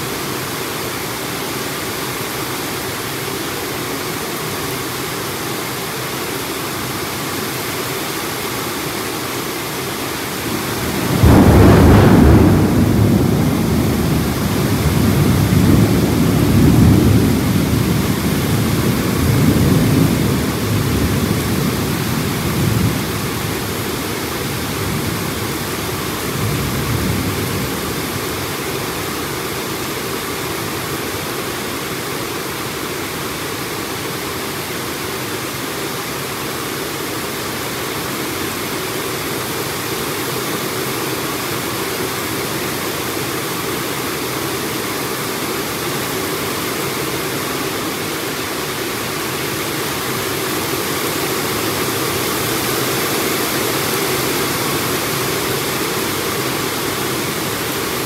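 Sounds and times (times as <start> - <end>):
heavy rain pouring: 0.0 - 58.0
thunder rumbling: 10.4 - 30.2.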